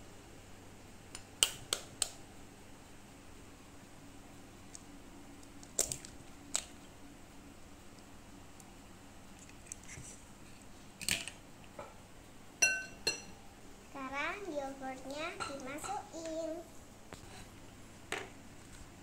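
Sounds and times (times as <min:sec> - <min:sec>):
eggshell crackles: 0:04.5 - 0:10.7.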